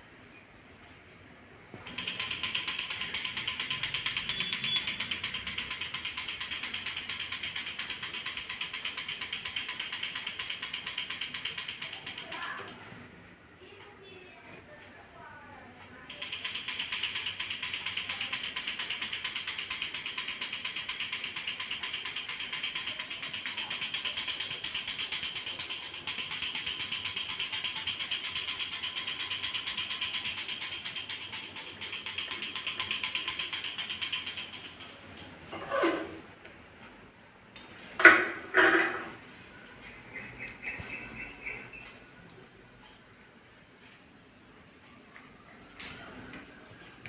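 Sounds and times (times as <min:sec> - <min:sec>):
hand bell ringing: 0:01.9 - 0:13.1, 0:16.1 - 0:35.9, 0:37.6 - 0:38.6.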